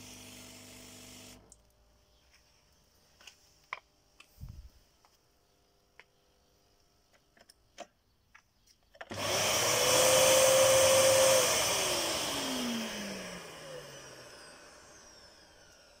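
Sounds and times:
motor winding down: 0:09.1 - 0:16.0
vacuum motor whining: 0:09.1 - 0:16.0.

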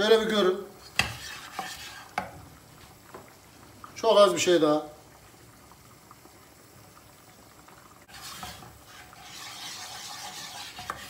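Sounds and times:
light sizzle: 0:00.0 - 0:11.0
wooden spoon stirring in pot: 0:00.7 - 0:03.3, 0:08.1 - 0:11.0.

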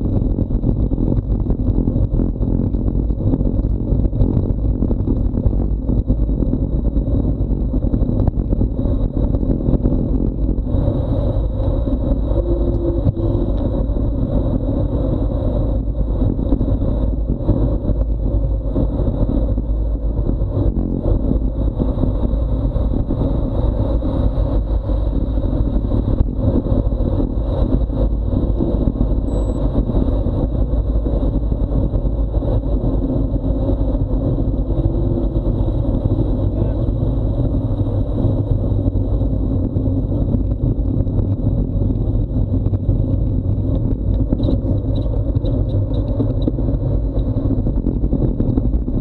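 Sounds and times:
wind buffeting microphone: 0:00.0 - 0:49.0
faint high whine: 0:12.1 - 0:13.8, 0:29.2 - 0:29.8.

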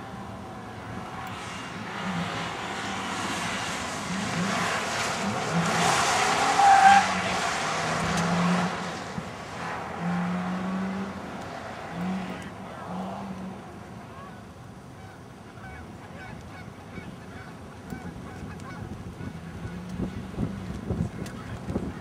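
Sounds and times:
car engine passing: 0:00.0 - 0:14.4.

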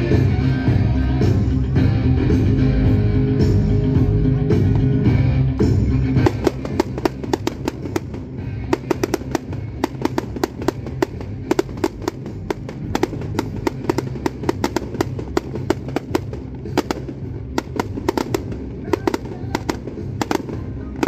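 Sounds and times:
music playing: 0:00.0 - 0:21.0
fireworks bangs and crackles: 0:05.6 - 0:21.0.

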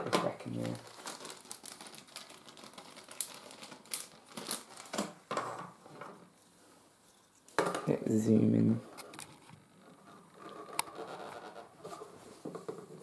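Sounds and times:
plastic bag crinkling: 0:00.2 - 0:05.2.

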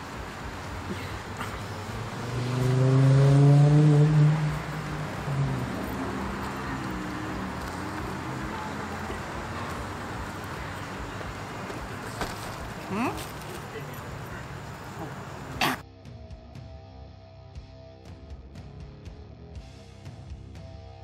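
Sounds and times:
background traffic noise: 0:00.0 - 0:15.8
car driving past: 0:00.6 - 0:15.6.

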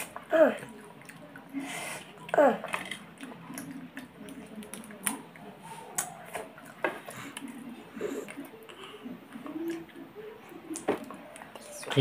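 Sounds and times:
soft eating noises: 0:00.0 - 0:12.0
crab shell cracking: 0:02.6 - 0:05.3.

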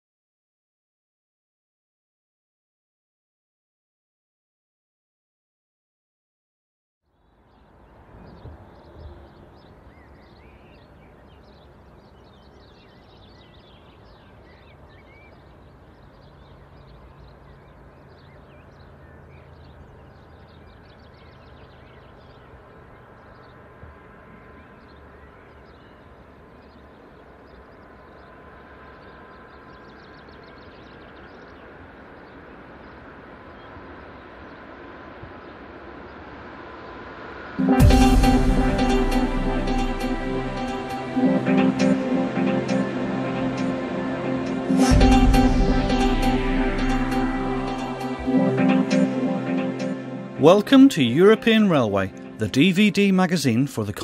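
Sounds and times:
small birds chirping: 0:07.1 - 0:36.3
distant train rumbling: 0:26.1 - 0:54.0.

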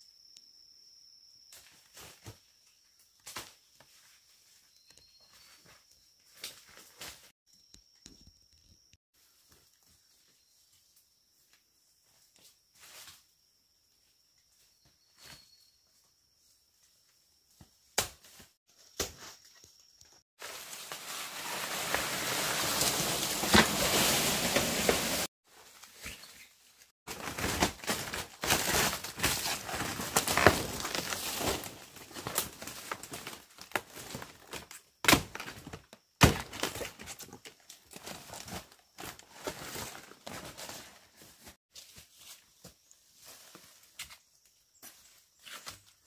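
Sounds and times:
rustling and crinkling: 0:20.4 - 0:46.0.

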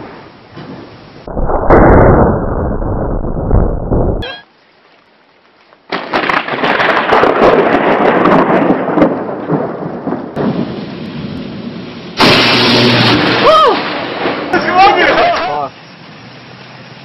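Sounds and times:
thunder rumbling: 0:00.0 - 0:04.2, 0:05.9 - 0:14.8
sharp thunder crack: 0:01.2 - 0:04.2, 0:05.9 - 0:14.7
heavy rain: 0:04.5 - 0:17.0.

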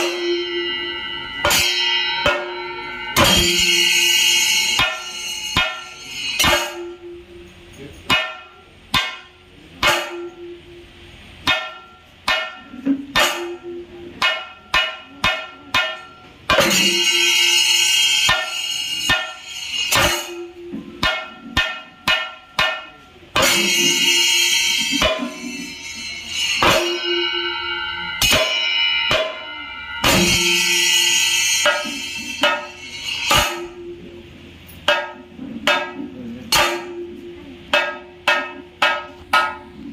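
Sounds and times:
drums struck with sticks: 0:00.0 - 0:39.9
ringing cymbals: 0:00.0 - 0:39.9.

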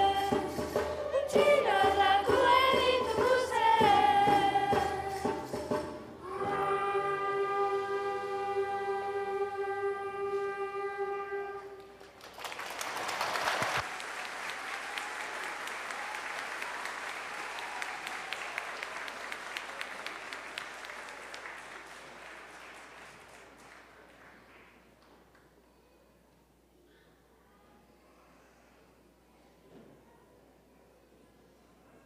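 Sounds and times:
audience applause: 0:11.8 - 0:25.2.

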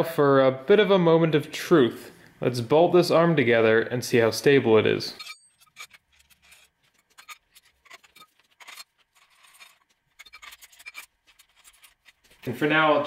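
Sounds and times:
metal parts clicking and knocking: 0:05.2 - 0:12.4.

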